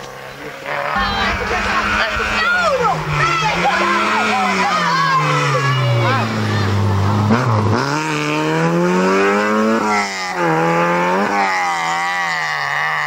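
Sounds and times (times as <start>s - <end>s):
car engine revving through gears: 6.2s - 13.0s.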